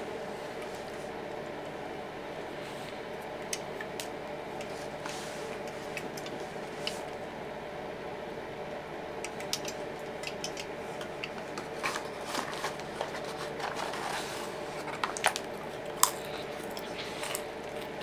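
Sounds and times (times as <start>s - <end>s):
packaging clicks and rustles: 11.0s - 18.0s.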